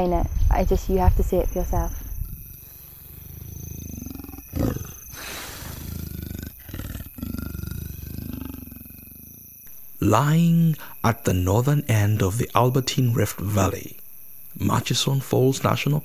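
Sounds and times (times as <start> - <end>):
leopard grunting: 2.0 - 9.4.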